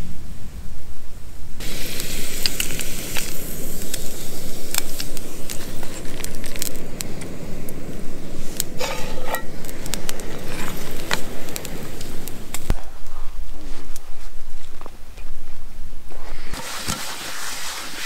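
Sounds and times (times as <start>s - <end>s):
gas stove burning: 1.5s - 15.3s, 16.0s - 18.0s
pan and utensils clinking: 8.7s - 9.6s.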